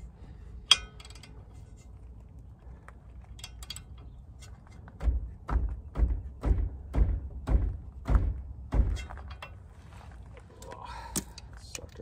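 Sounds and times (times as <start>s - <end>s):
heavy knocks of ratchet handle: 4.7s - 9.6s.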